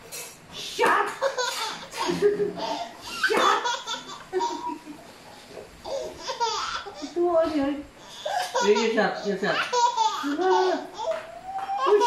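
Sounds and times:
toddler laughing: 1.2 - 5.0, 5.8 - 7.2, 8.2 - 12.0.

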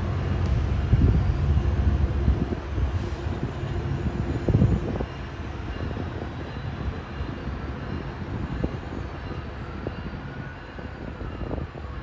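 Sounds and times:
train rumbling on tracks: 0.0 - 12.0.

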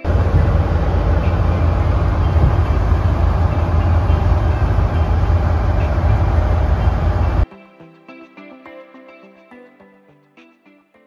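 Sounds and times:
boat engine rumble: 0.0 - 7.4
wind: 0.0 - 7.4.

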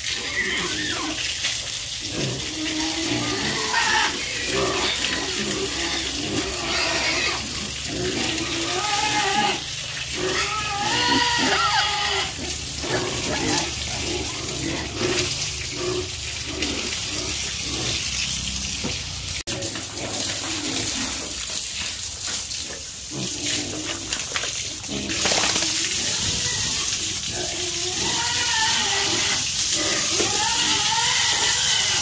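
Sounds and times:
pigs squealing: 0.0 - 18.7, 24.8 - 32.0
rushing water: 0.0 - 32.0
pigs grunting: 2.0 - 18.3, 24.8 - 32.0.

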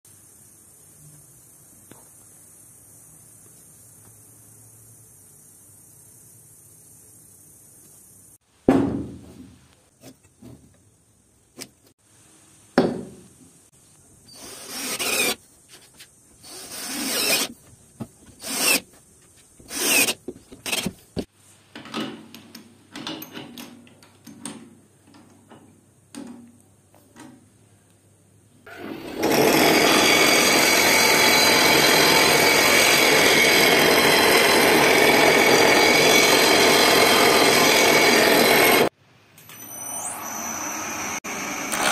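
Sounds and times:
bench grinder grinding: 14.4 - 15.4, 16.5 - 17.5, 19.6 - 20.9, 28.7 - 38.9, 39.9 - 41.9.

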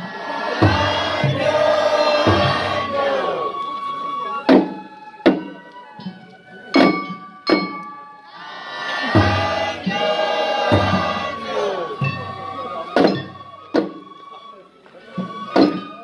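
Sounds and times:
chorus of voices singing: 0.0 - 3.6, 8.3 - 13.6
flute-like melody: 0.0 - 16.0
sharp drum strikes: 0.5 - 3.2, 6.8 - 8.0, 9.0 - 14.0.

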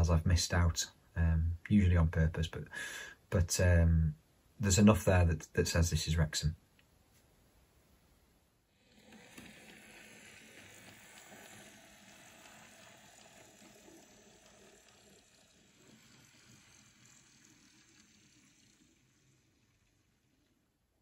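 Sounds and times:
model train running on rails: 8.9 - 20.4.

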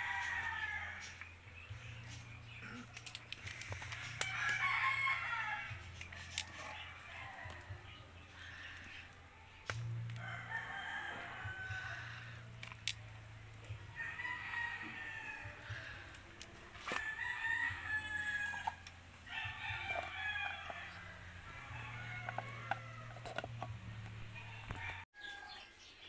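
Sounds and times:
rooster crowing: 0.0 - 1.2, 4.2 - 5.8, 10.2 - 12.5, 13.9 - 16.1, 16.9 - 23.5, 24.2 - 25.6.

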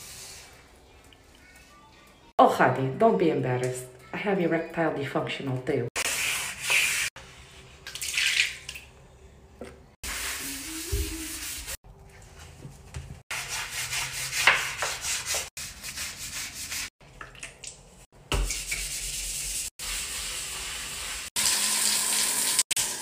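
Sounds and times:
scrub brush on wet tile: 6.0 - 7.8, 10.0 - 12.4, 13.3 - 16.9, 18.5 - 21.4.

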